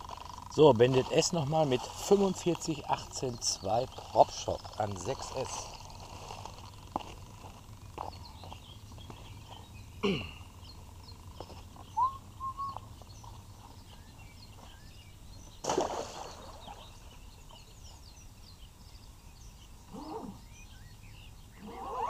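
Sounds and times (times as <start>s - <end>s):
small birds chirping: 0.0s - 22.0s
boat splashing into water: 15.6s - 16.9s.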